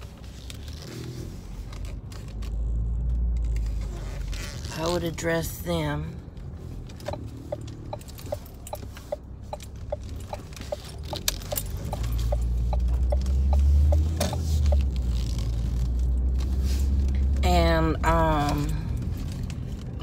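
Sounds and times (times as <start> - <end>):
low engine and road rumble: 0.0 - 20.0
car turn signal ticking: 7.0 - 14.9.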